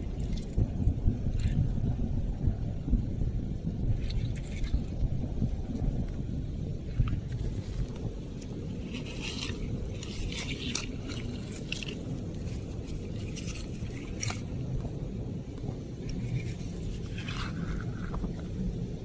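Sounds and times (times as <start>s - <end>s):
steady low rumble: 0.0s - 19.0s
fingers scraping through sand: 7.3s - 14.6s, 16.1s - 18.3s.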